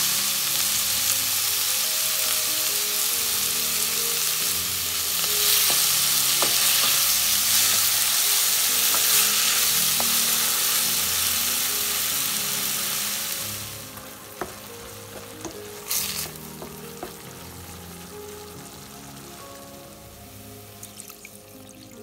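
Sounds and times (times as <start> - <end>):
tomatoes sizzling in oil: 0.0 - 22.0
wooden spoon stirring: 4.8 - 18.4
spoon tapping pan: 5.4 - 11.4, 13.8 - 17.4.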